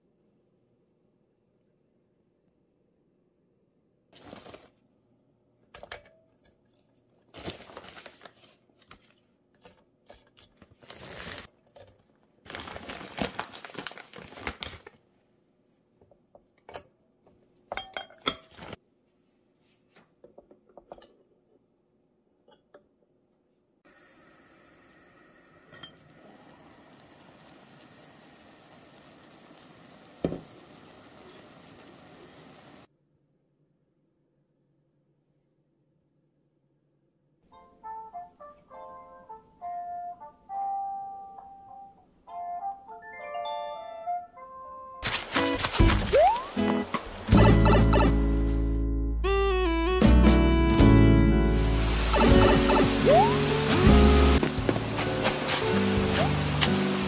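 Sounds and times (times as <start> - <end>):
plastic packaging crinkling: 7.3 - 9.2, 10.5 - 11.5, 12.4 - 15.0
steamer hissing: 51.6 - 57.0.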